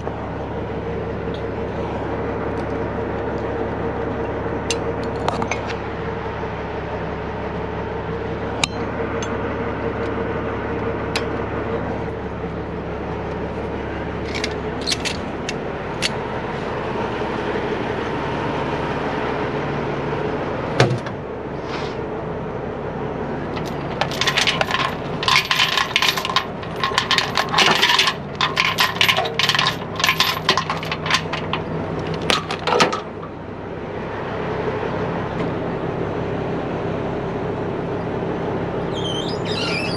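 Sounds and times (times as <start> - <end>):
diesel engine idling: 0.0 - 39.9
chains clinking and clanking: 23.6 - 33.1.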